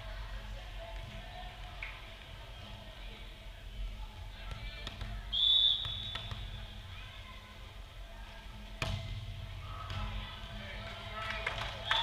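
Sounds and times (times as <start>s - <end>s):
volleyball bouncing on court: 4.5s - 6.6s, 8.8s - 10.2s
referee's whistle blast: 5.3s - 6.3s
volleyball serve slap: 8.8s - 10.2s.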